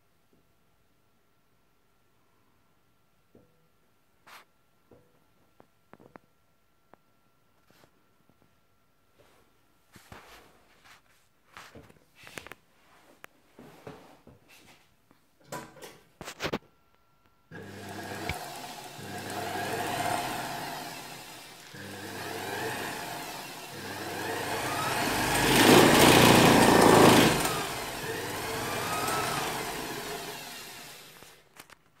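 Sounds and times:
industrial sewing machine running: 17.5s - 31.3s.

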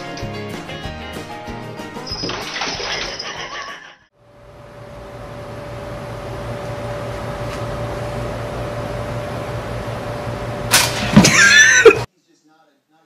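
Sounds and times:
appliance electrical hum: 4.1s - 12.1s.

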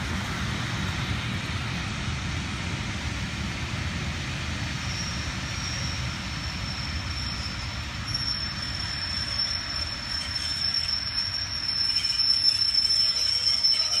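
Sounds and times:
train coaches rumbling on rails: 0.0s - 14.0s
high-pitched wheel squeal: 4.9s - 14.0s.

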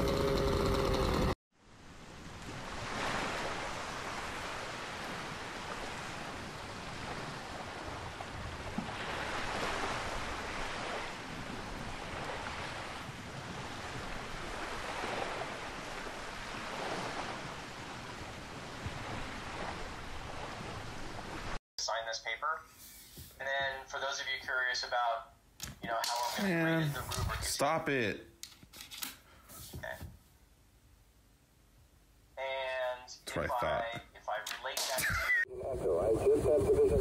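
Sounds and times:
small waves on beach: 0.0s - 21.6s.

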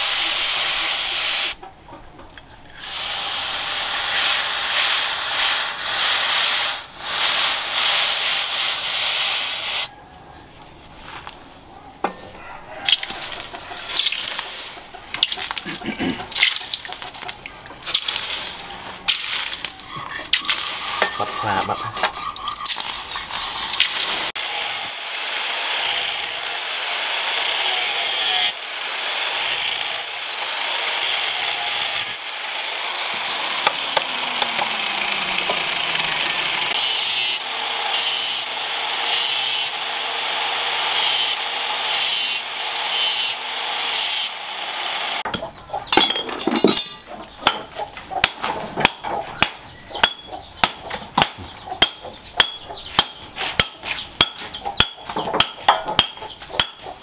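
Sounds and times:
angle grinder grinding steel: 2.7s - 9.9s, 12.9s - 57.0s
clinks and knocks of blade: 45.3s - 47.7s.

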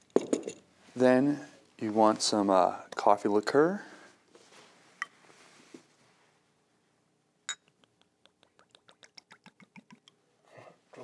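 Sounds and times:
glass bottle clinking: 7.5s - 7.8s.

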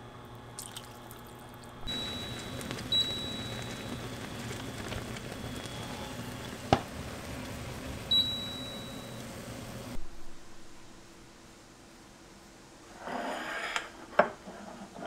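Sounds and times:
pot boiling over bubbling: 0.4s - 10.0s
cooktop beep: 1.8s - 10.0s.

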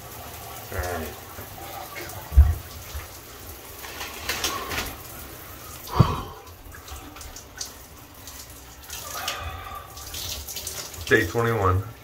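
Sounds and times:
shower water running and splashing: 0.0s - 12.0s.

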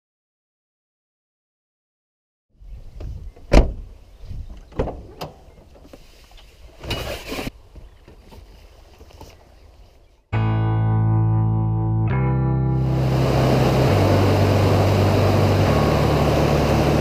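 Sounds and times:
rush of noise: 12.8s - 17.0s.

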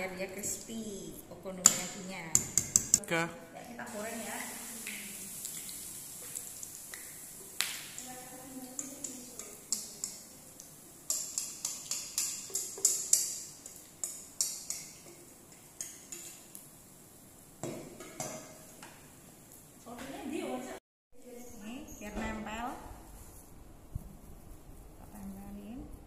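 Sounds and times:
batter sizzling in hot oil: 3.8s - 19.8s.

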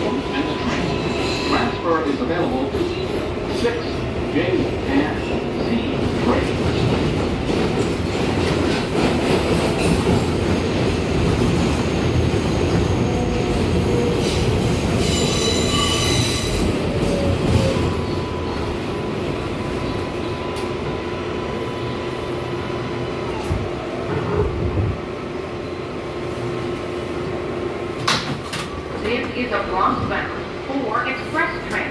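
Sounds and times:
subway train rumble: 0.0s - 31.9s
high wheel squeal: 15.0s - 16.7s.

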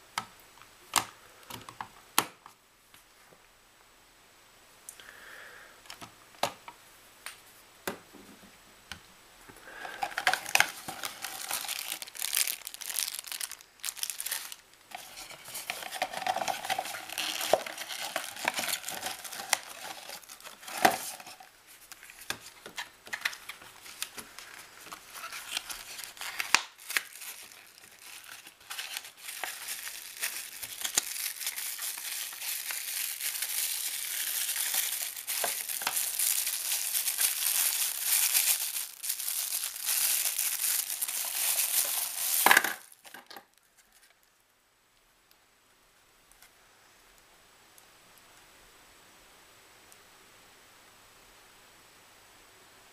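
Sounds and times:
plastic packaging crinkling: 9.7s - 44.1s.

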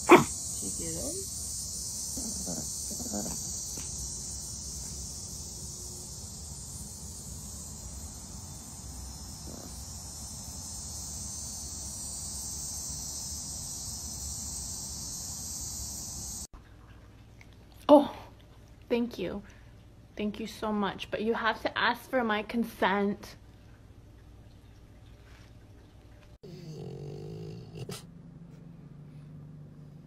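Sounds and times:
insects chirring: 0.0s - 16.5s.

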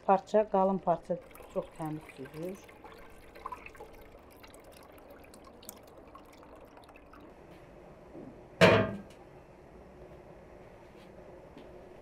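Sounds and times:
juice dripping into metal pot: 0.0s - 7.6s
metal pot clunk on board: 8.6s - 9.1s.

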